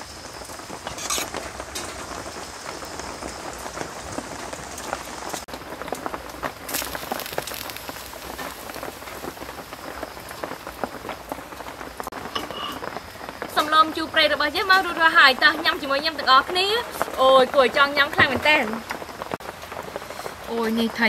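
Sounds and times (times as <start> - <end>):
heavy rain falling: 0.0 - 21.0.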